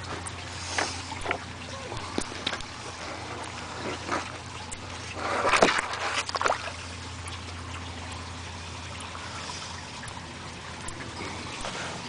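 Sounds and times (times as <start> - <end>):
steady low hum: 0.0 - 12.0
water trickling: 0.0 - 12.0
splash into water: 5.2 - 6.8.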